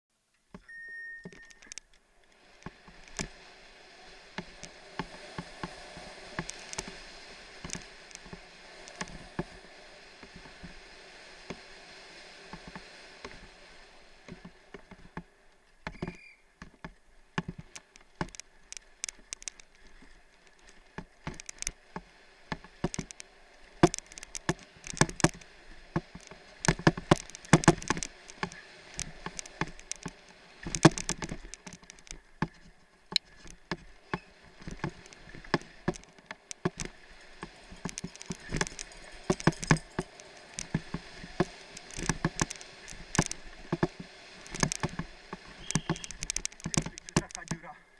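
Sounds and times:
bike rattling over bumps: 14.3s - 47.7s.

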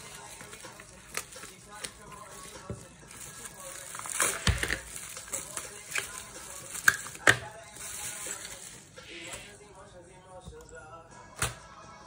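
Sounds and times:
plastic wrapping crinkling: 0.0s - 9.6s.

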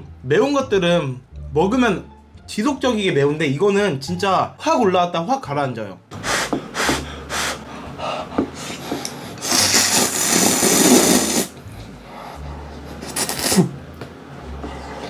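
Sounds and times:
noodles being slurped: 9.0s - 11.6s, 13.0s - 13.7s.

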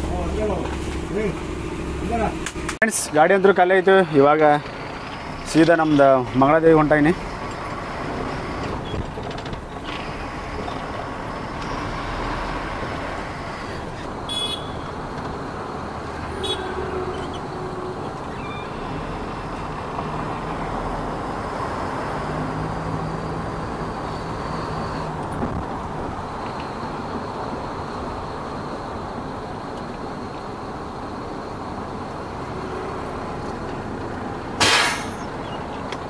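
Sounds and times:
truck engine and road drone: 0.0s - 36.0s
horn toots: 14.3s - 15.0s, 16.3s - 18.1s.

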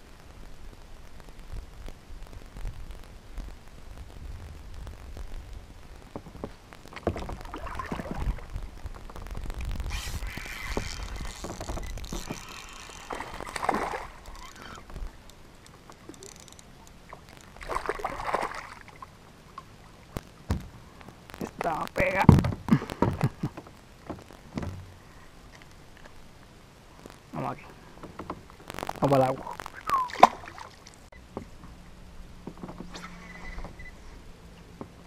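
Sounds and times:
water sloshing and splashing: 6.9s - 21.2s, 28.0s - 31.1s.

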